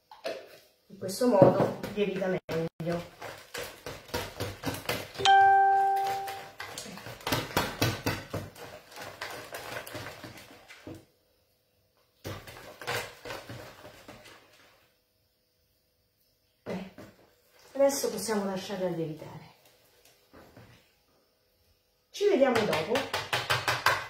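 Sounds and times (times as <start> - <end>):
clear ringing tone: 5.2 - 6.6.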